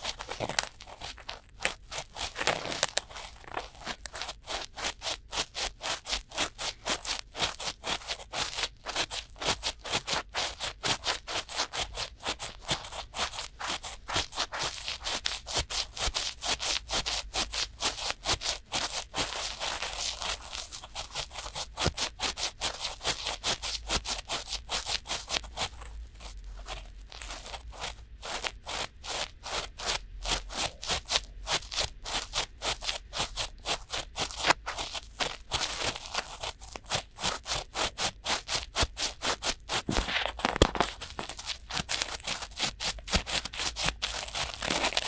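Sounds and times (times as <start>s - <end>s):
cotton swabs rubbing microphone: 24.2s - 45.0s.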